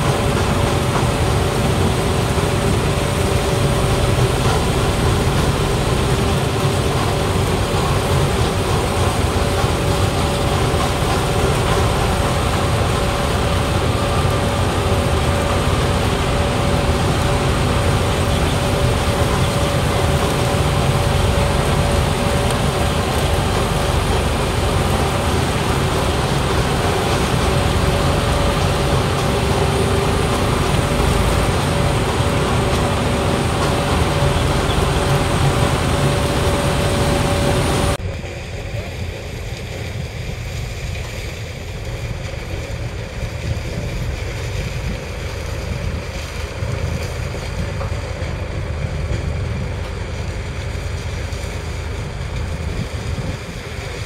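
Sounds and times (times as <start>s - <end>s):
harvester and tractor engines: 0.0s - 54.0s
tractor engine running: 0.0s - 54.0s
wind buffeting microphone: 0.0s - 54.0s.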